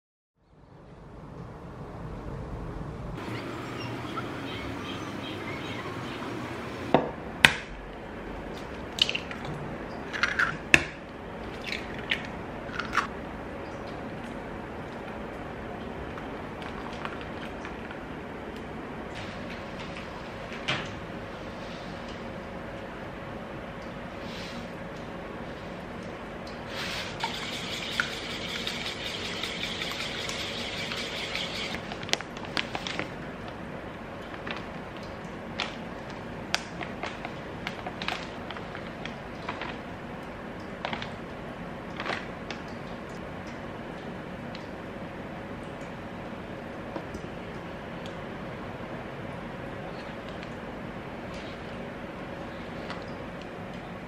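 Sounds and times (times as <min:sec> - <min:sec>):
whisk beating in a metal bowl: 0:27.1 - 0:31.8.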